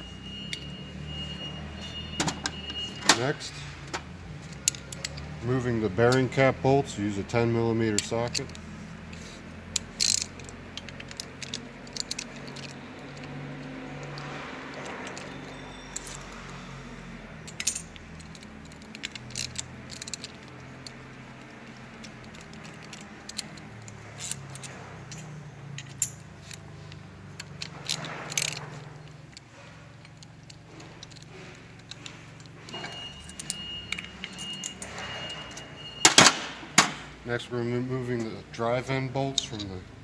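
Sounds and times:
metallic clinks of wrench and bolts: 4.4s - 6.4s, 7.3s - 16.7s, 17.4s - 36.3s.

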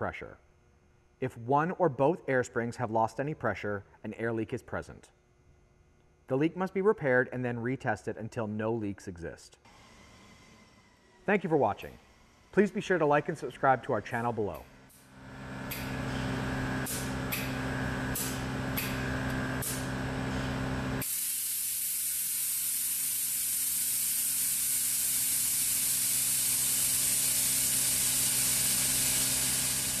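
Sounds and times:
air compressor humming: 9.6s - 30.0s
air venting hiss: 21.0s - 30.0s.

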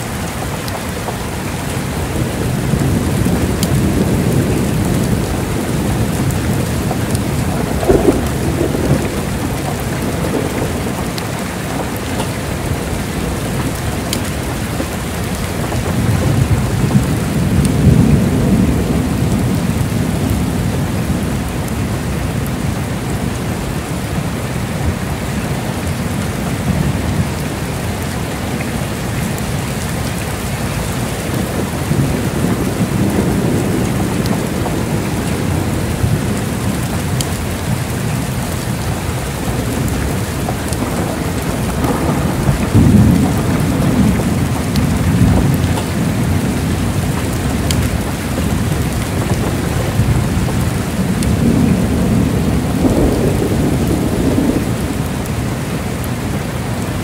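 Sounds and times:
heavy rain: 0.0s - 57.0s
deep thunder rumbling: 0.2s - 57.0s.

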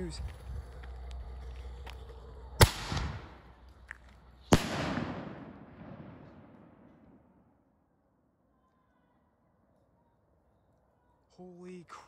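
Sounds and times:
firework launch bang: 4.5s - 7.2s.

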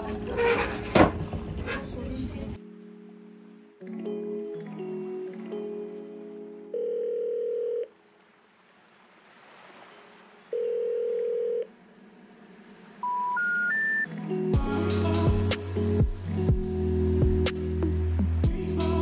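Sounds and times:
long telephone beeps: 6.8s - 7.9s, 10.6s - 11.7s, 13.0s - 14.1s
rising three-tone signal: 13.0s - 14.1s
music with drum beat: 14.6s - 17.6s, 18.4s - 19.0s.

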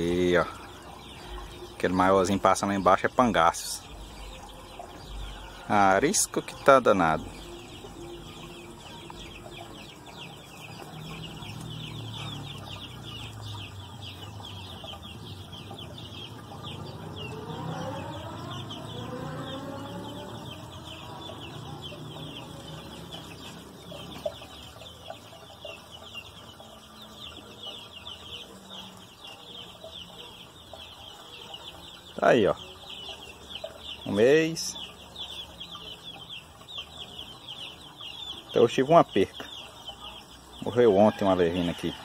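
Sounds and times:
chickens clucking: 0.0s - 42.0s
dense high chirping: 0.0s - 42.0s
rising and falling call: 6.5s - 26.9s.

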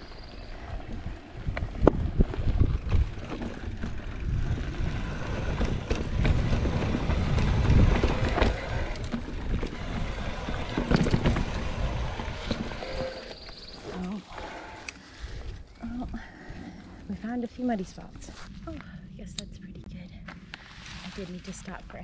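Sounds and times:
wind on microphone: 0.0s - 13.3s
bike tyre noise on dirt: 0.0s - 18.6s
bike clicks and rattles: 0.3s - 16.4s.

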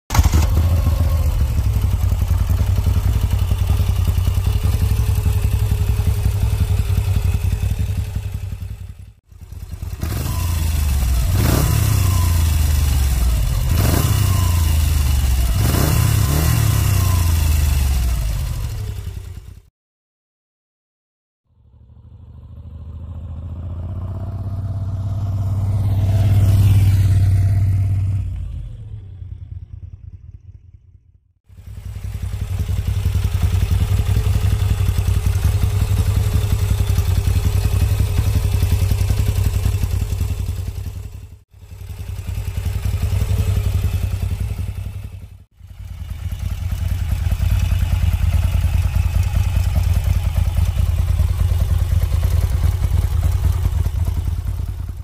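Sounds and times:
motorcycle engine idling: 0.1s - 19.7s, 21.5s - 55.0s
motorcycle passing by: 9.8s - 18.8s, 21.5s - 30.7s.

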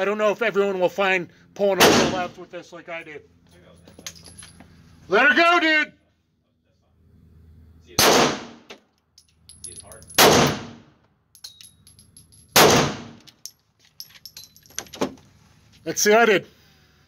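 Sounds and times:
pistol shots ringing indoors: 8.0s - 8.6s, 10.2s - 10.8s, 12.5s - 13.2s.

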